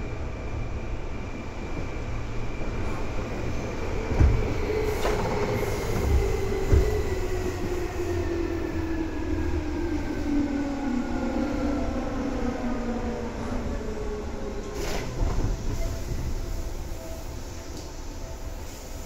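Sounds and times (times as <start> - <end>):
train wheels rumbling: 2.8 - 10.2.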